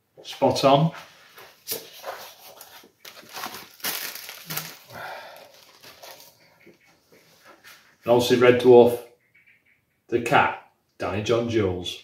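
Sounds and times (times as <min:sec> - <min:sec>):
photographs rustling and crinkling: 0:01.1 - 0:08.0.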